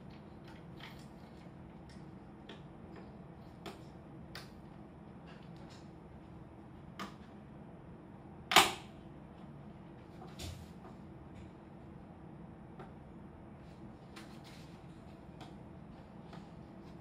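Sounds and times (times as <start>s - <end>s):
faint steady hum: 0.0s - 17.0s
loud sharp snap: 8.5s - 8.9s.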